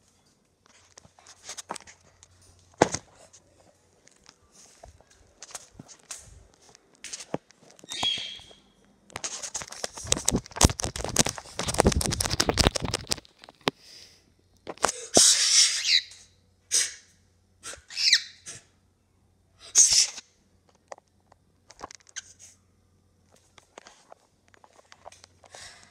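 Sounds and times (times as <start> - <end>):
parrot squawking: 7.9 - 8.6, 15.2 - 16.2, 17.7 - 18.5.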